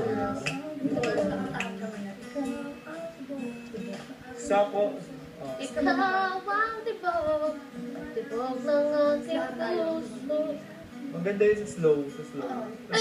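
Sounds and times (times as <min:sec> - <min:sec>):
woman singing on television: 0:00.0 - 0:11.2.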